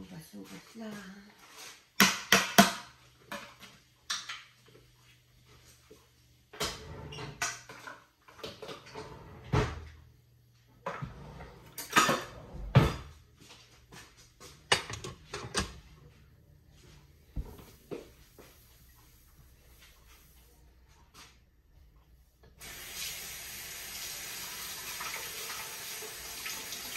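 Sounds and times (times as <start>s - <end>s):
dishes clattering: 11.8s - 13.2s, 14.6s - 15.8s.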